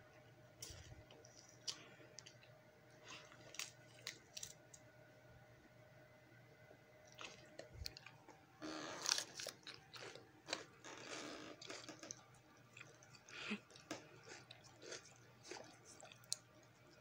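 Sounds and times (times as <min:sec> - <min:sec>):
dog crunching pepper: 0:08.9 - 0:16.5.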